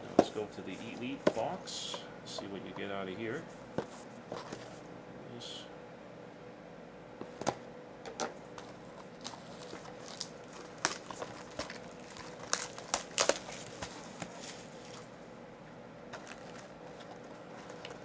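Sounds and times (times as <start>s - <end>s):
packaging tearing and crinkling: 8.6s - 15.1s, 16.1s - 18.0s.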